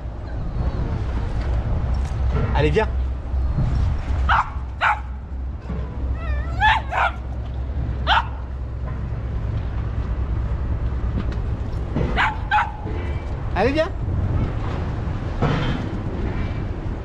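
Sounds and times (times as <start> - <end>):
dog barking in high yelps: 4.3 - 5.2, 6.2 - 7.3, 8.0 - 8.5, 12.1 - 12.9
dog whining: 6.1 - 7.3.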